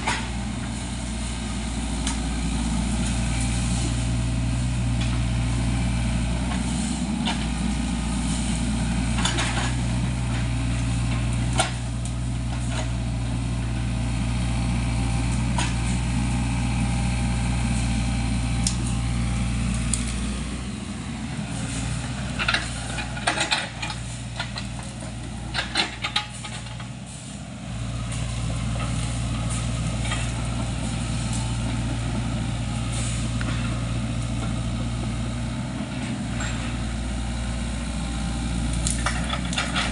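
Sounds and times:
excavator diesel engine running: 0.0 - 39.9
metallic clanks and knocks: 22.4 - 24.9.

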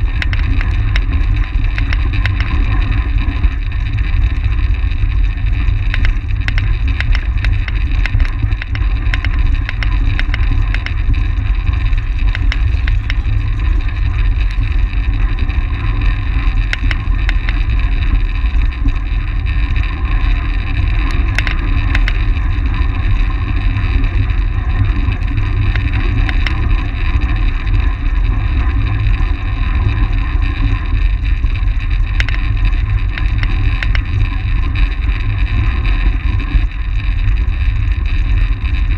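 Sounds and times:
sharp clicks: 0.0 - 2.8, 5.9 - 13.7, 16.6 - 17.7, 21.0 - 22.3, 25.6 - 26.7, 32.2 - 32.5, 33.1 - 34.2.

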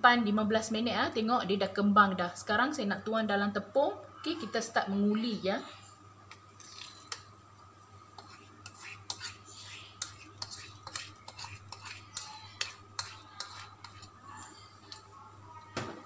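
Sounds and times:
faint steady hum: 0.0 - 16.0
fingers scraping ceramic bowl: 8.2 - 14.2.

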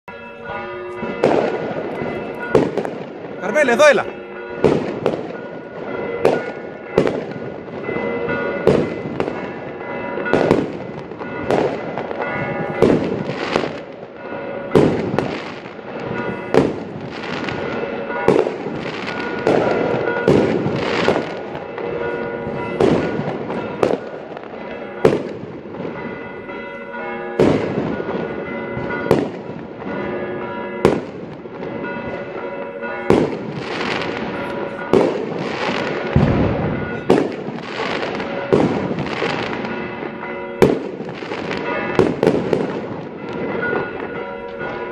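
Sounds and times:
fireworks bursting with bangs: 1.0 - 26.2, 27.4 - 30.1, 30.8 - 32.3, 33.1 - 44.8.

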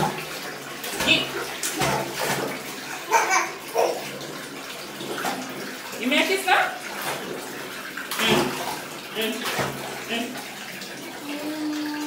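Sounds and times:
water splashing in bathtub: 0.0 - 12.0
child vocal sounds: 11.2 - 12.0.

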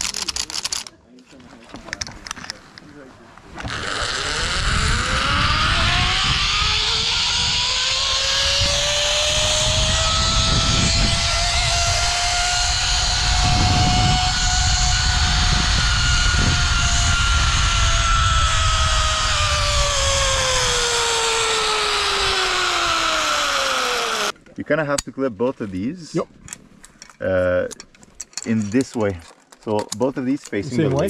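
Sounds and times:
wind rushing over microphone: 3.6 - 24.3
zipline pulleys whining on cable: 3.6 - 24.4.

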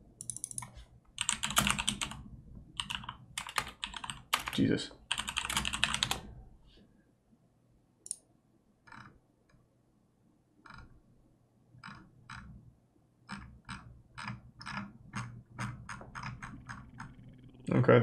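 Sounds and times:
keyboard keys clicking: 0.2 - 2.2, 2.8 - 6.3.

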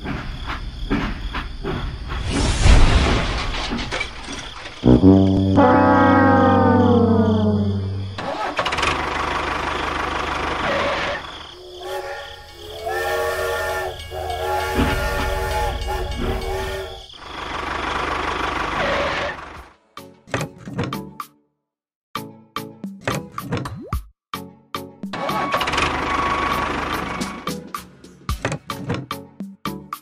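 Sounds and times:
falling horn-like tone: 4.6 - 8.5
steam whistle blasts: 4.8 - 8.4, 11.6 - 17.2.

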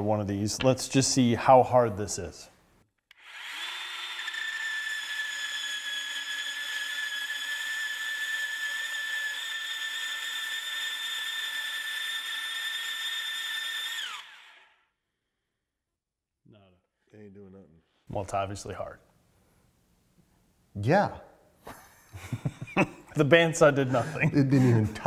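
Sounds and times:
band saw whining on metal: 3.1 - 14.7.

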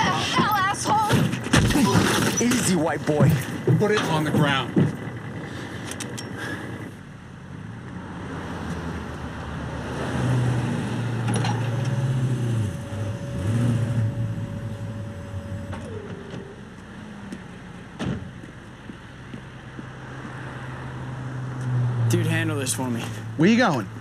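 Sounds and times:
vehicle engines passing: 2.4 - 24.0
held tone dropping in pitch: 11.7 - 16.8.

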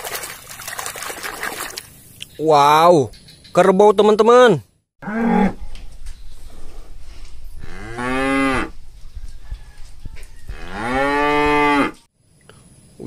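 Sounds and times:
cow mooing: 5.0 - 5.6, 7.6 - 8.8, 10.5 - 12.0.

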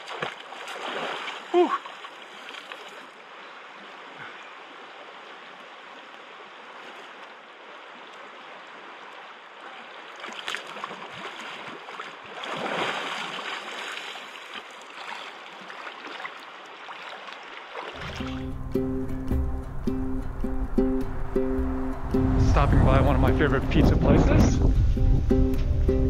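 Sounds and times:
splashing in water: 0.0 - 3.2, 5.0 - 18.6
creek water running: 0.0 - 25.4.

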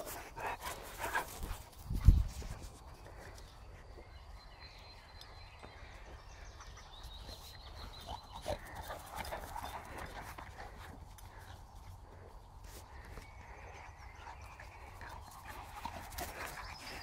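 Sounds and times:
dog paws galloping on grass: 0.0 - 4.8, 5.5 - 17.0.

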